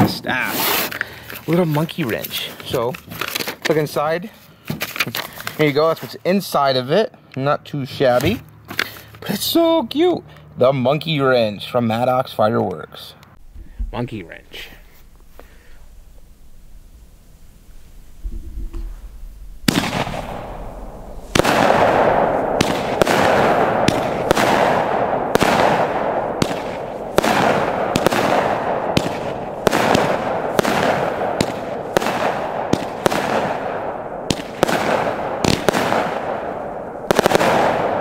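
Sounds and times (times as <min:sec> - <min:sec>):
firework cracks with rumbling echo: 0:15.8 - 0:38.0.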